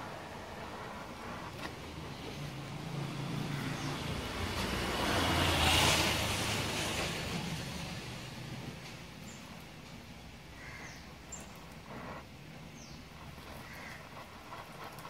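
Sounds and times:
vehicle passing: 0.0 - 9.6
welding torch flame hiss: 0.0 - 15.0.

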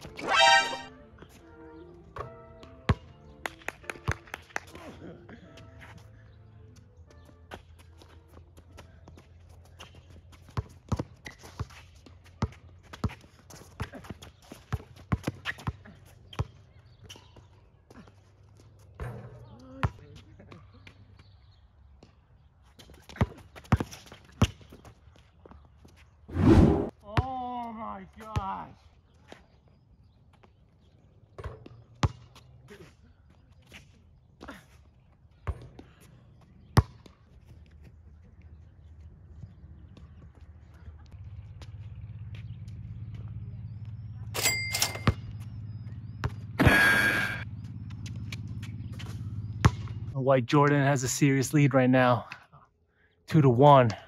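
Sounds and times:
basketball bouncing on court: 9.8 - 16.6, 19.0 - 20.0, 31.4 - 32.4, 35.4 - 36.0, 36.8 - 37.2, 45.0 - 46.8, 47.6 - 50.1
basketball striking court and hoop: 36.8 - 37.1, 44.4 - 45.5, 48.2 - 50.0.

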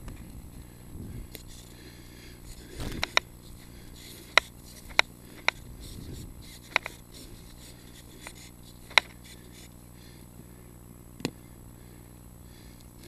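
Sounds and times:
faint hum and hiss: 0.0 - 13.0
sharp short clicks: 8.2 - 9.2.

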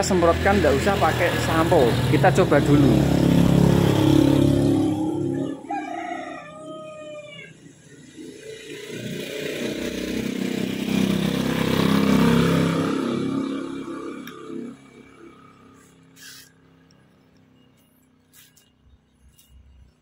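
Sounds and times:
rooster crowing: 4.4 - 7.7.

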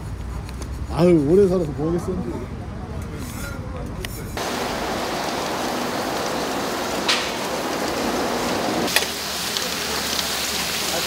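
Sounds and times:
hot oil sizzling: 4.4 - 11.0.

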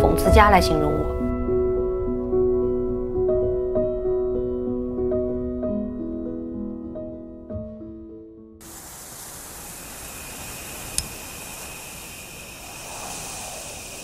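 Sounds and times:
soft piano music: 0.0 - 8.6
steady airy hiss: 8.6 - 14.0
whoosh: 12.1 - 14.0.

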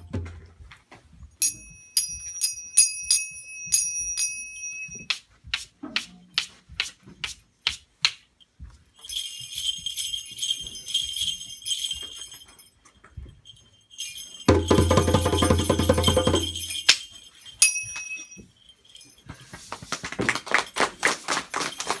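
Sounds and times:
small bells jingling: 1.4 - 5.1, 8.3 - 22.0.

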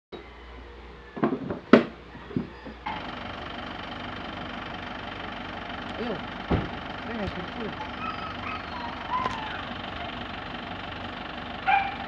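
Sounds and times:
steady background hum: 0.2 - 3.0.

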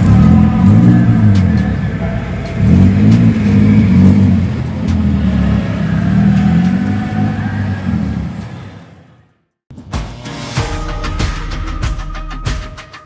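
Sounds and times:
car engine accelerating: 0.0 - 9.3.

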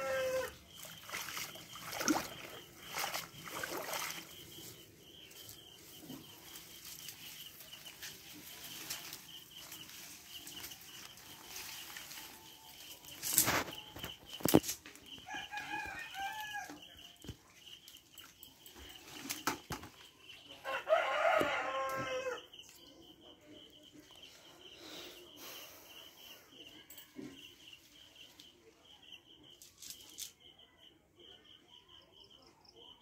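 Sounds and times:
chicken calls: 0.0 - 0.6
rooster crowing: 0.0 - 0.6, 15.2 - 16.8, 20.6 - 22.5.

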